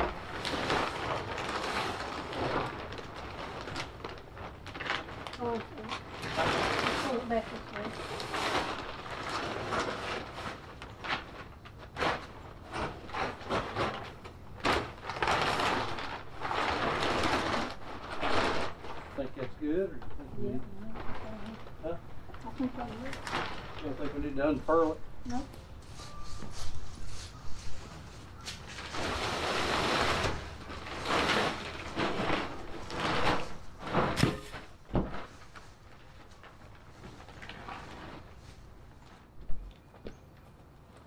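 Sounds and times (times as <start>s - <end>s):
tarp sharp crack: 0.0s - 25.0s, 27.6s - 39.3s
plastic tarp rustling and crinkling: 0.0s - 39.9s.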